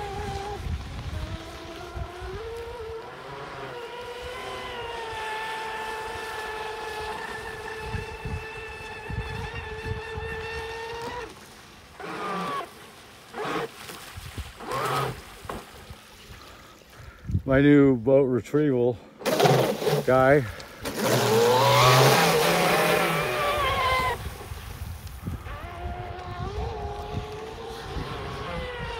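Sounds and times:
rc boat motor whine: 0:00.0 - 0:13.8, 0:14.6 - 0:15.2, 0:20.8 - 0:28.9.

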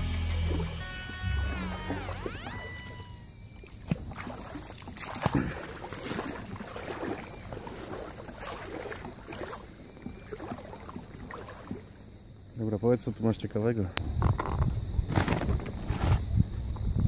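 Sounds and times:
water sloshing and splashing: 0:00.3 - 0:12.3.

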